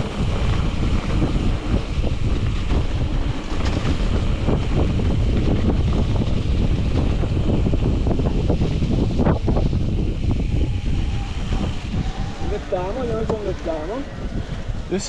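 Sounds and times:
bike knocks and rattles: 0:00.0 - 0:10.4
tyres rumbling on dirt trail: 0:00.0 - 0:15.0
wind buffeting microphone: 0:00.0 - 0:15.0.

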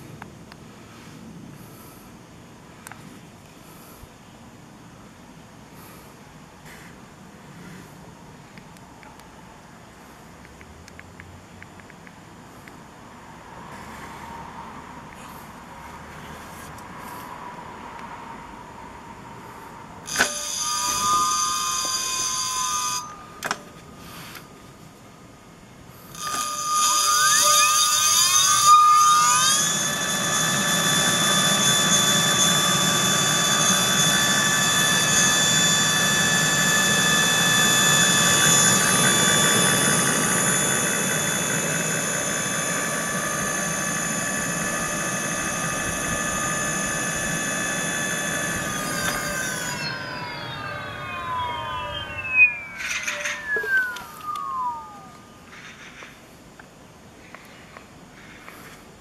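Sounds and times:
click: 0:08.6 - 0:09.3, 0:10.4 - 0:12.8
electric motor whine: 0:20.1 - 0:24.4, 0:26.0 - 0:55.5.

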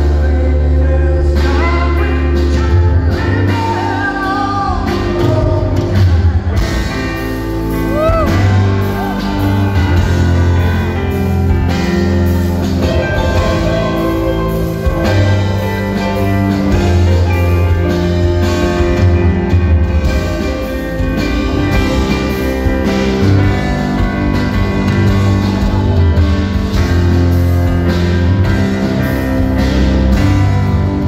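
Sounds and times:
man singing: 0:00.0 - 0:23.5
bass guitar: 0:00.0 - 0:31.0
drums: 0:00.0 - 0:31.0
keyboard: 0:00.0 - 0:31.0.

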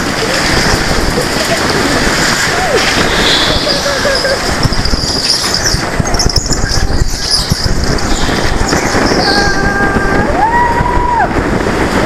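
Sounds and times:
go-karts engines din: 0:00.0 - 0:11.9
high squeal: 0:02.9 - 0:09.7.

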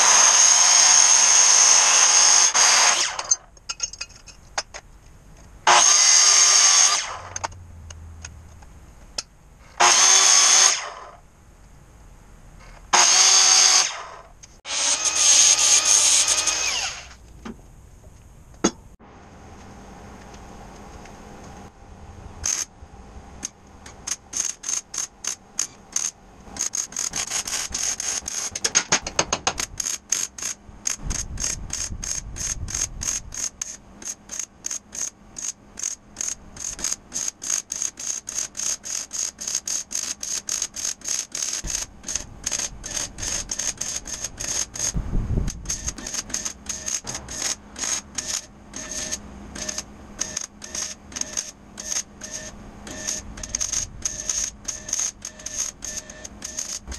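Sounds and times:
welding arc crackling and sputtering: 0:23.4 - 0:56.9.

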